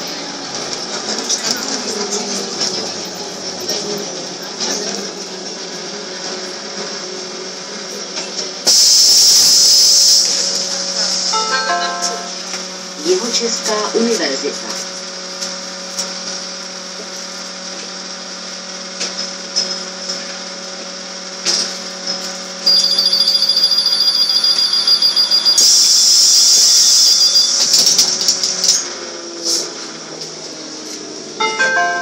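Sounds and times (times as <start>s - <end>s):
trolleybus equipment humming: 0.0s - 32.0s
loud hiss of doors closing: 8.6s - 10.6s
high-pitched door warning tone: 22.6s - 28.0s.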